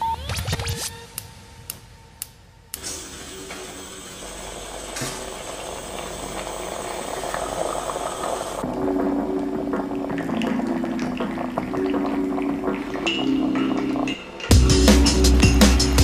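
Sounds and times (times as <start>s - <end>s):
moka pot hissing: 2.8s - 9.4s.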